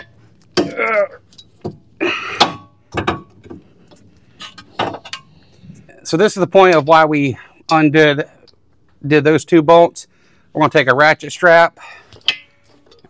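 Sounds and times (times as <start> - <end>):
pry bar metal knocks and clanks: 2.4 - 3.6.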